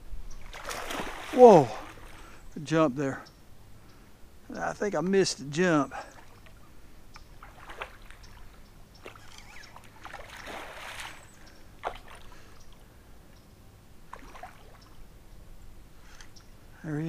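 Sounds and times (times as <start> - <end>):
fish splashing in water: 0.4 - 2.2, 7.4 - 12.4, 14.1 - 15.0.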